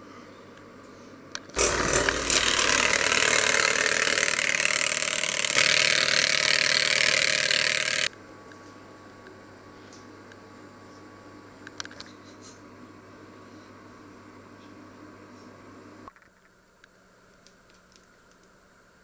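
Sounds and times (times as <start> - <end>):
electric hand mixer whisking: 1.6 - 8.1.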